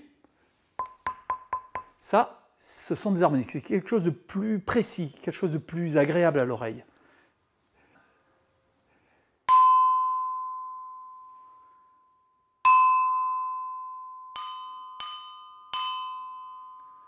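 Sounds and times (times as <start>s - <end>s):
stone lithophone struck with mallet: 0.8s - 2.0s, 14.4s - 17.0s.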